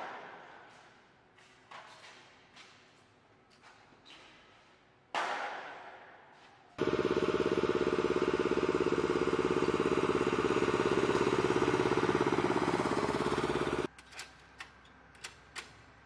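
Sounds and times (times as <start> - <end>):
engine running: 6.8 - 13.9.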